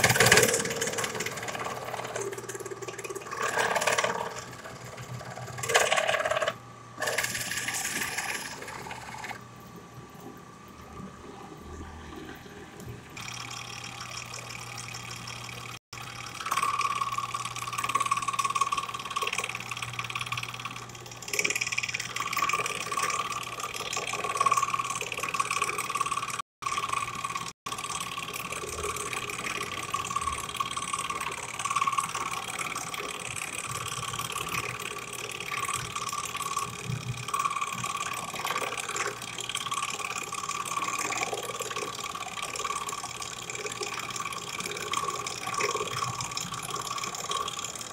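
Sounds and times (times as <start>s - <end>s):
drill press motor hum: 0.0s - 9.6s, 11.6s - 47.9s.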